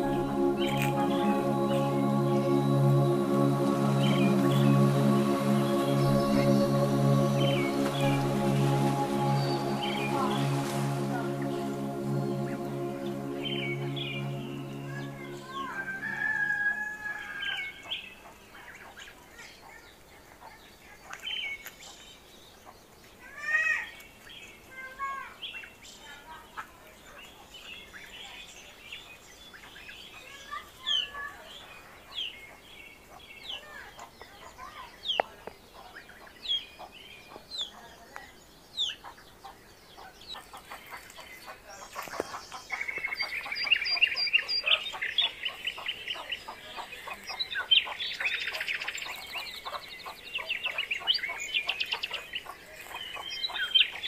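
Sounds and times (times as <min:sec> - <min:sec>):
chicks peeping: 0:38.8 - 0:54.0.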